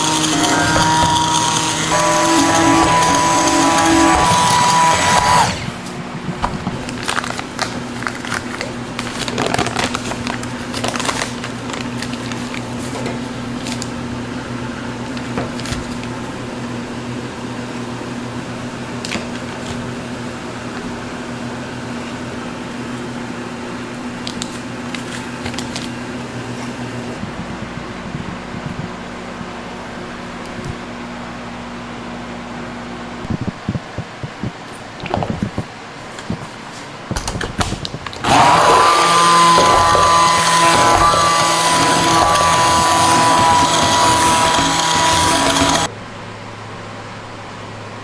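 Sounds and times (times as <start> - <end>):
steady machine hum: 0.0 - 37.2, 38.0 - 48.0.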